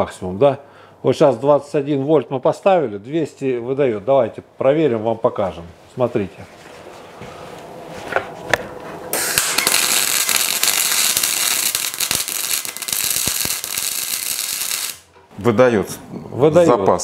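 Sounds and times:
welding arc crackling: 0:09.1 - 0:15.2.

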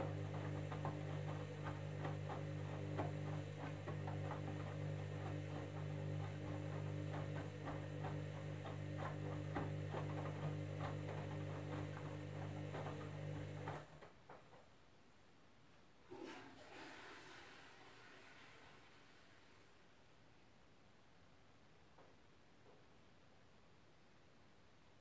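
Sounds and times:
washing machine motor hum: 0:00.0 - 0:14.4
laundry knocking in drum: 0:00.0 - 0:14.6.

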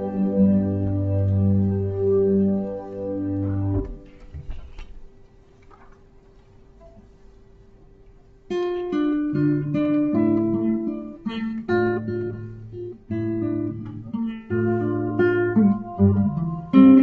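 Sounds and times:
acoustic guitar chords and picked notes: 0:00.0 - 0:05.0, 0:08.5 - 0:17.0.

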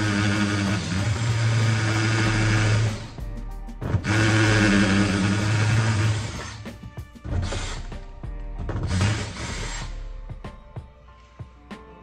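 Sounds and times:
cordless drill boring metal: 0:00.0 - 0:03.2, 0:04.0 - 0:08.0, 0:08.7 - 0:10.0.

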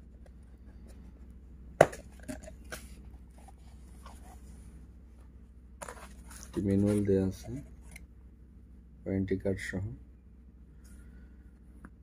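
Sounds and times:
packaging rustling: 0:05.8 - 0:08.0.

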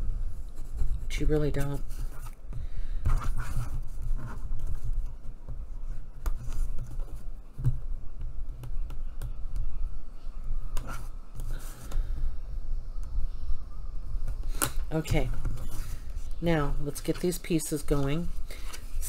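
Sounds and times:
cardstock brushing and scraping: 0:14.5 - 0:16.4.

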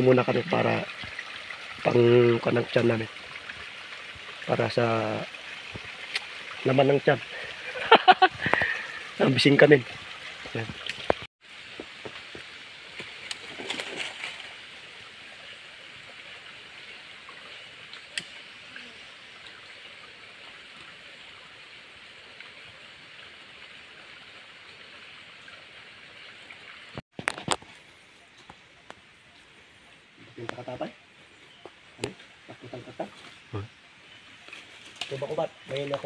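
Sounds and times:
water trickling over stones: 0:00.0 - 0:36.0.

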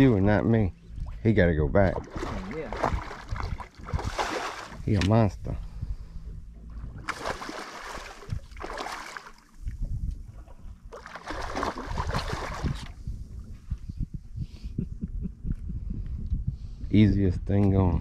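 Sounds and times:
low wind rumble: 0:00.0 - 0:18.0
fish splashing in water: 0:02.0 - 0:04.9, 0:07.0 - 0:09.4, 0:10.9 - 0:12.9.

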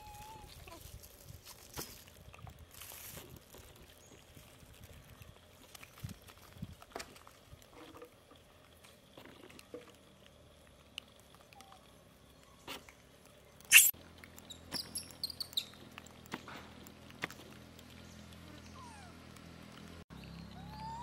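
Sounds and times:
high squeaks: 0:13.7 - 0:13.9.

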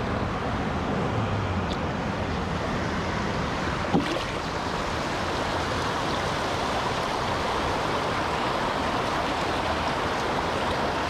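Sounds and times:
water rushing over rocks: 0:03.2 - 0:11.0.

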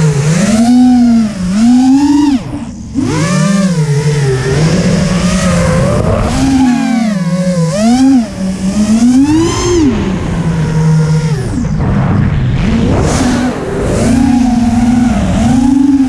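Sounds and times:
drone motors whining: 0:00.0 - 0:16.0
wind rush: 0:11.4 - 0:15.7.

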